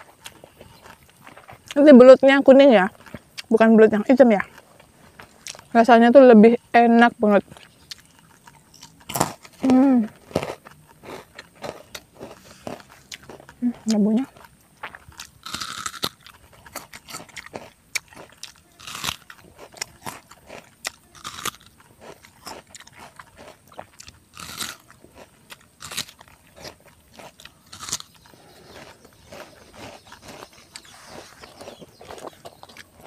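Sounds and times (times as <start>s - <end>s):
chewing: 0.0s - 1.9s, 2.8s - 5.8s, 7.4s - 33.0s
crunchy bites into fruit: 7.5s - 33.0s.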